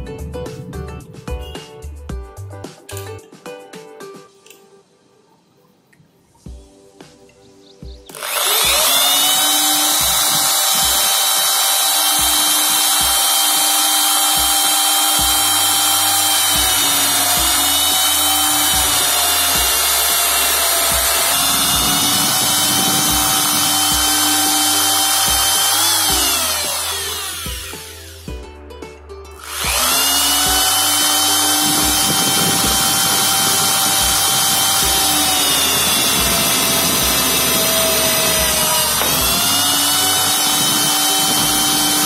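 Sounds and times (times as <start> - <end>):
drill press whining: 8.1 - 28.3, 29.4 - 42.0.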